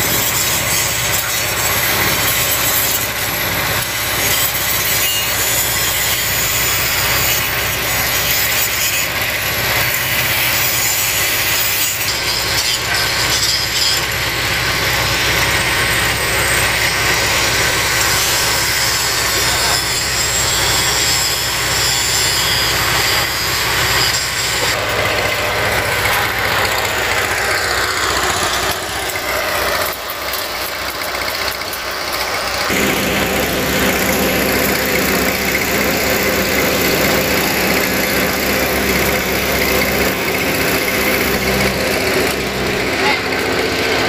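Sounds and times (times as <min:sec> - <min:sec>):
heavy machine engine idling: 0:09.1 - 0:10.7, 0:22.6 - 0:44.0.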